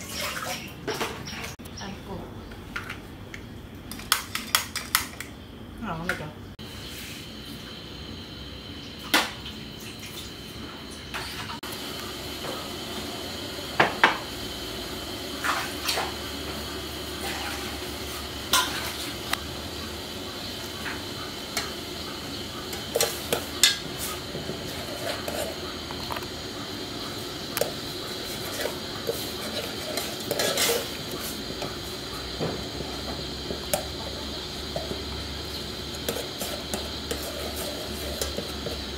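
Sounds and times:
metal ladle scraping a pot: 17.2 - 17.8, 28.2 - 31.4, 36.1 - 38.9.

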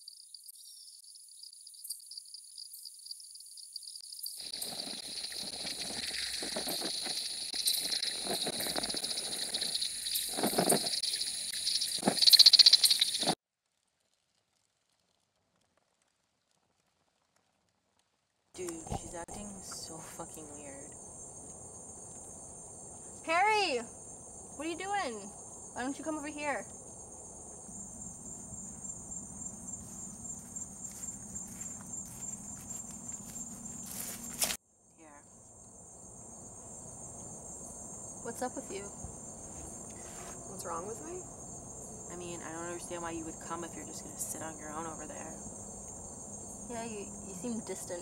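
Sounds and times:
crickets chirping: 0.0 - 13.4, 18.6 - 48.0
night insects trilling: 0.0 - 13.4, 18.6 - 48.0
rapid rattling pulses: 4.3 - 13.4.

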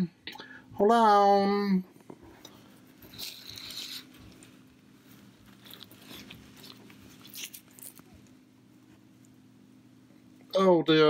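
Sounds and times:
synthetic wig hair rustling: 2.0 - 9.2.

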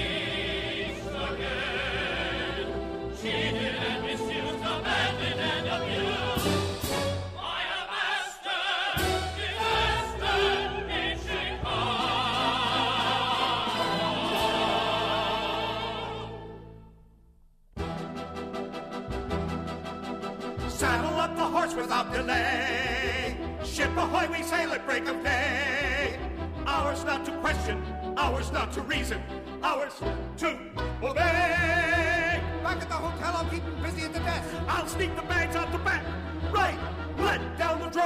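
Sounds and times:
singers with wide vibrato: 0.0 - 16.8
full orchestra: 0.0 - 17.0, 17.8 - 38.0.

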